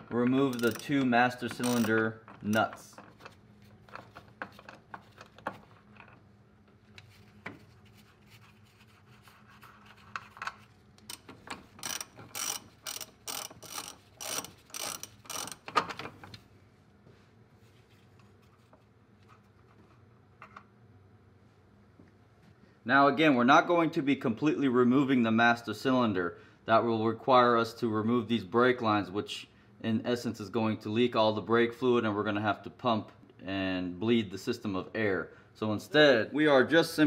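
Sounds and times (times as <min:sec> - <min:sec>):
ratchet wrench clicking: 0:00.4 - 0:02.7, 0:11.0 - 0:15.7.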